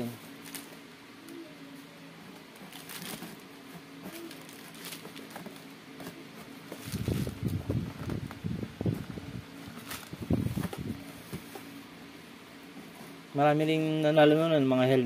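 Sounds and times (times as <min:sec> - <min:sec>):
plastic pouch crinkling and tearing: 0:02.6 - 0:03.4, 0:04.1 - 0:05.7.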